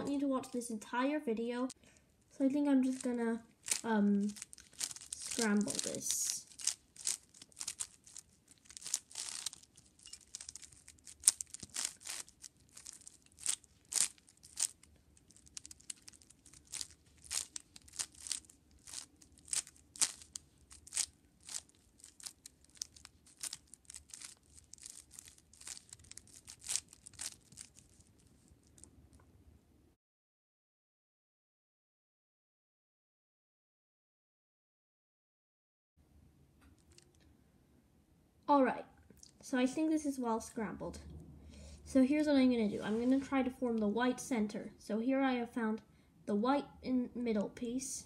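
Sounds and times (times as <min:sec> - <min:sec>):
puzzle cube plastic clacks: 0:02.9 - 0:28.0.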